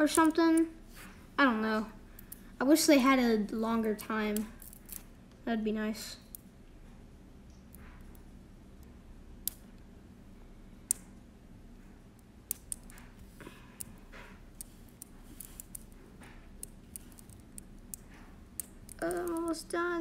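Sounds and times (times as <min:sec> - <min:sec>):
magnet balls clicking: 0:00.0 - 0:00.7, 0:03.9 - 0:05.1, 0:07.6 - 0:09.9, 0:10.8 - 0:11.2, 0:12.1 - 0:19.8.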